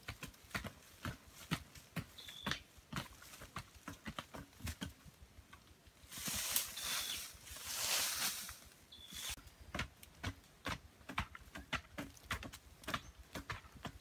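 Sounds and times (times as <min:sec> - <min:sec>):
dirt swishing as it is flung: 0:06.1 - 0:09.4
digging stick knocking earth: 0:06.1 - 0:14.0.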